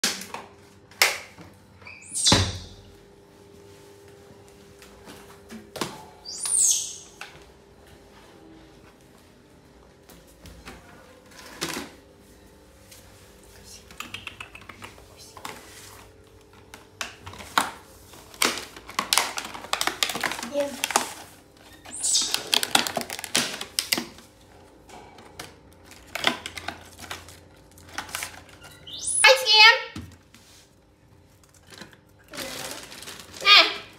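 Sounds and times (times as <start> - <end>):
baby monkey squealing: 1.9 - 2.8, 6.2 - 7.1, 21.9 - 22.5, 28.8 - 29.4
plastic tub and bag crackling: 17.4 - 21.7, 22.4 - 24.1, 31.6 - 33.9.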